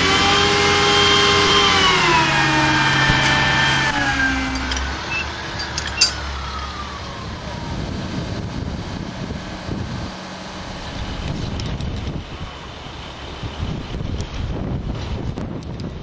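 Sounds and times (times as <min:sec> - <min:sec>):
crane engine winding down: 0:00.0 - 0:13.9
wind on the microphone: 0:07.2 - 0:16.0.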